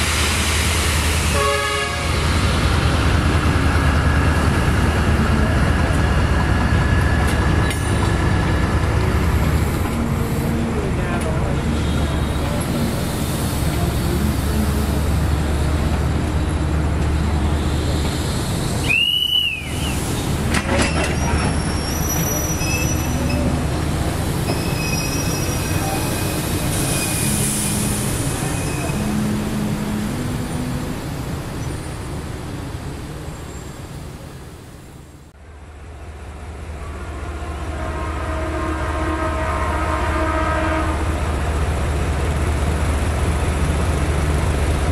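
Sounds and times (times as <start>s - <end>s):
locomotive engine rumbling: 0.0s - 44.9s
faint high squeals: 24.5s - 26.3s.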